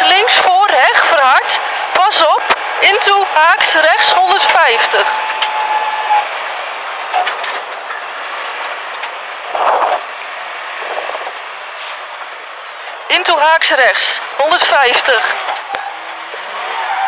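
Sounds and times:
car engine and road noise: 0:06.2 - 0:17.0.

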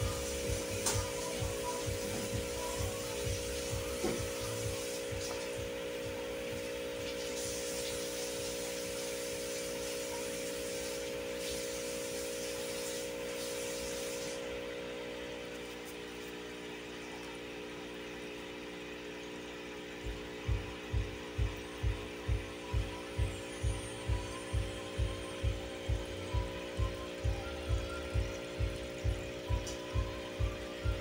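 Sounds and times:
machine hum: 0:00.0 - 0:31.0
hiss: 0:07.1 - 0:14.5.

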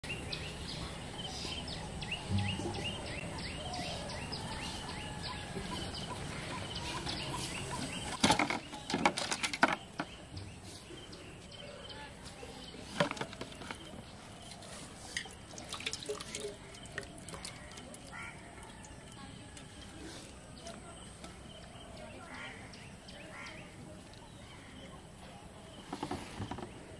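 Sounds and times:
birds chirping: 0:00.0 - 0:26.9
steel pail clattering: 0:15.2 - 0:18.1.

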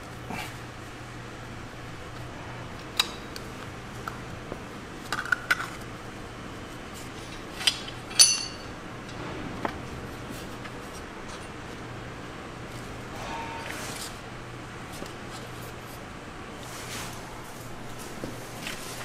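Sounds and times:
metal fittings clinking: 0:07.6 - 0:08.7.

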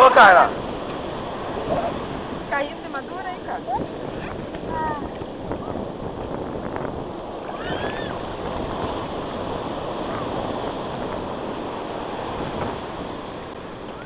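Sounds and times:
ocean surf breaking on sand: 0:00.0 - 0:14.0.

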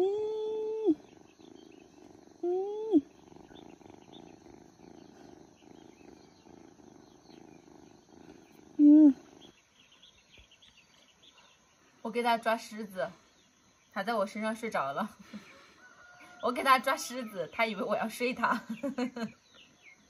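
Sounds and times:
kitten purring: 0:00.0 - 0:10.0.

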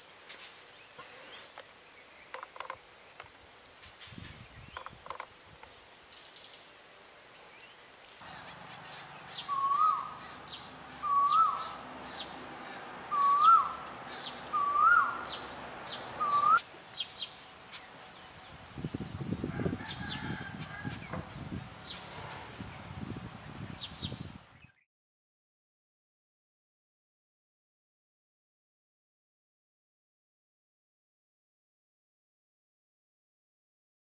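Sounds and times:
faint high ticking calls: 0:00.9 - 0:06.6, 0:07.5 - 0:18.7
bird calling mellow notes: 0:07.6 - 0:18.0.

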